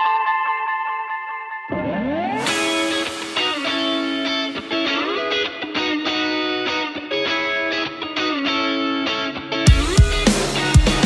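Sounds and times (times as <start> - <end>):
sustained guitar notes: 1.7 - 6.3
band playing with heavy drums: 9.7 - 11.0.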